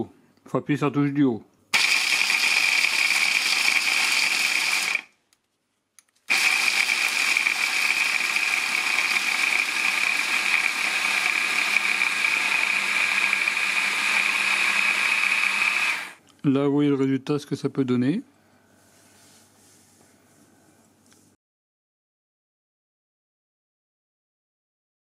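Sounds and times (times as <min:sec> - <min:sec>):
hand blender grinding nuts: 0:01.8 - 0:05.1, 0:06.3 - 0:16.2.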